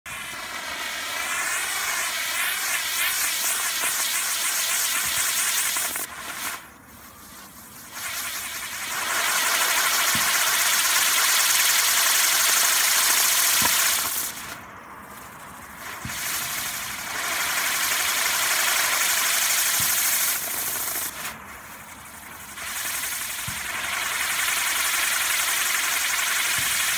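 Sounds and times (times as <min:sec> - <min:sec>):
firework fountains hissing: 0:00.1 - 0:26.9.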